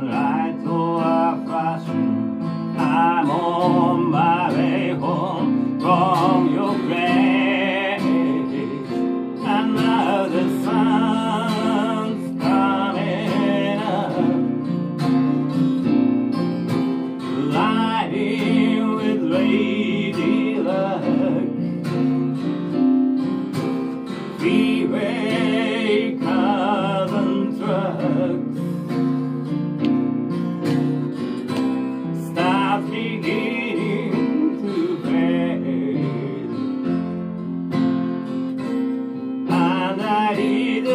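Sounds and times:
man singing: 0.0 - 15.3, 17.2 - 22.1, 24.3 - 29.3, 32.1 - 37.1, 39.4 - 40.9
acoustic guitar strumming: 0.0 - 40.9
keyboard accompaniment: 0.0 - 40.9.

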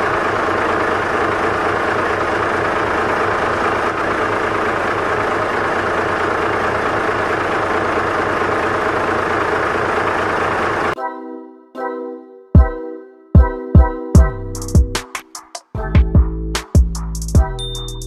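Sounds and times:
truck engine idling: 0.0 - 11.0.

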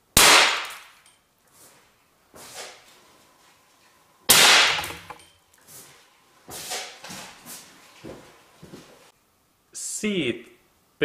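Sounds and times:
sharp explosive bangs: 0.2 - 0.8, 4.3 - 5.2.

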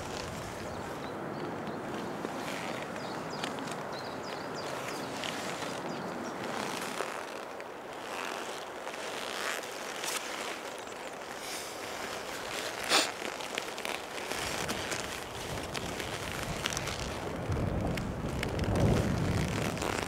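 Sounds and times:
rustling and crackling from handling: 0.0 - 20.0
outdoor hiss: 11.3 - 15.0.

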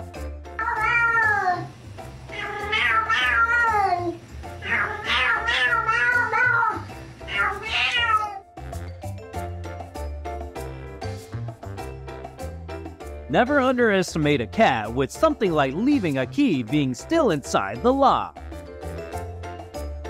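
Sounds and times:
background music with steady beat: 0.0 - 20.0
cat meowing: 0.6 - 1.7, 2.3 - 8.5.

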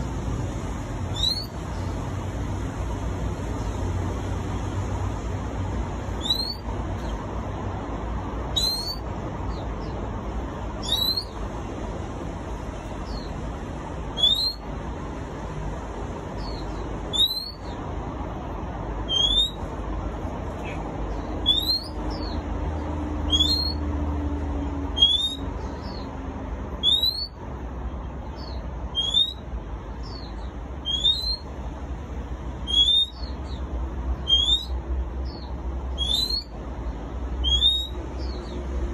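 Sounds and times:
bird singing whistled notes: 1.1 - 1.9, 6.2 - 7.1, 8.5 - 9.9, 10.8 - 11.4, 14.1 - 14.7, 16.4 - 17.8, 19.0 - 19.6, 21.4 - 22.4, 23.3 - 23.8, 25.0 - 26.1, 26.8 - 27.4, 28.4 - 29.4, 30.0 - 31.5, 32.6 - 33.6, 34.2 - 36.5, 37.4 - 38.6.

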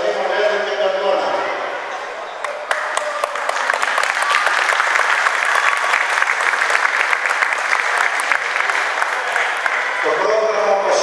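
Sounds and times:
audience applauding: 2.4 - 10.3.

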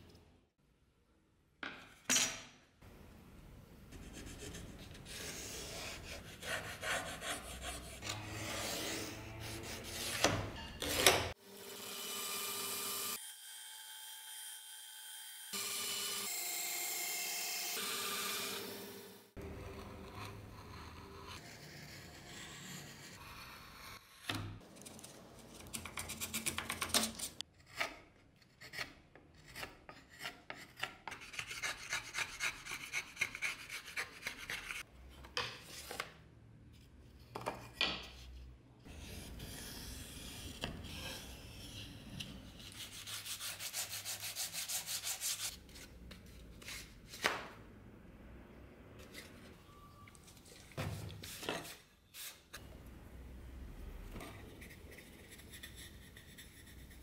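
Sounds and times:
gouge scraping wood: 4.1 - 10.3.

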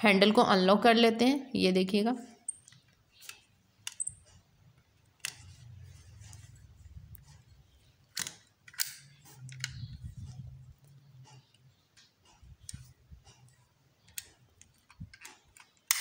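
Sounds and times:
staple gun metal clicks: 8.1 - 9.8.

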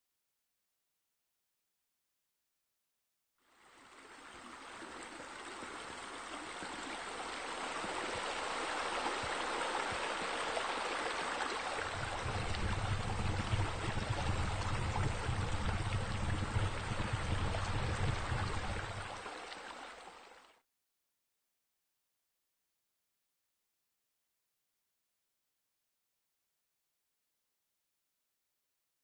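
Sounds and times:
running water rushing: 3.5 - 20.6
low steady hum: 11.0 - 19.3.

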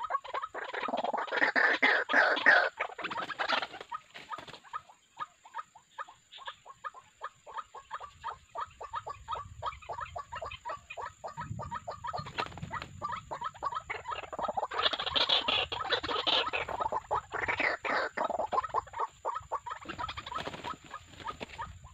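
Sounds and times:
waterhen clucking calls: 0.0 - 21.9
wings flapping and scuffling: 2.9 - 4.8, 12.0 - 21.9.

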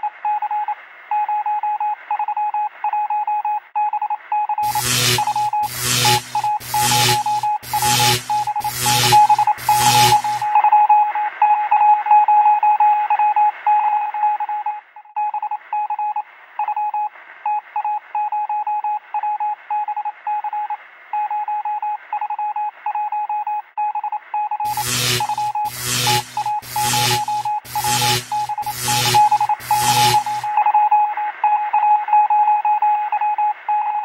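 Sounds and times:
morse code beeps: 3.8 - 10.9, 24.0 - 31.0
loud burst of sound: 4.6 - 10.6, 24.7 - 30.6.

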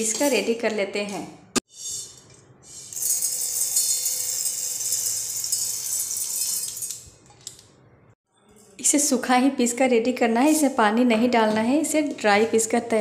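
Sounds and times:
grains rattling onto steel: 2.9 - 7.0.

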